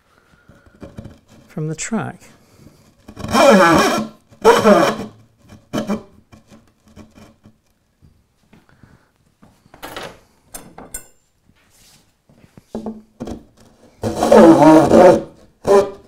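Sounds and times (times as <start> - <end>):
threaded rod rasping against wood: 0.4 - 1.8, 2.4 - 7.6, 12.8 - 16.0.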